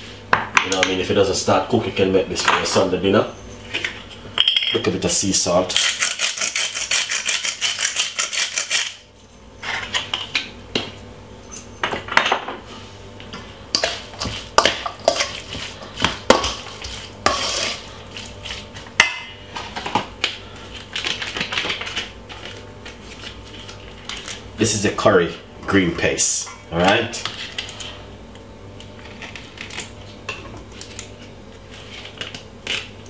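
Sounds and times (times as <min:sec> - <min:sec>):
metal spoon scraping steel bowl: 0:16.8 - 0:18.4.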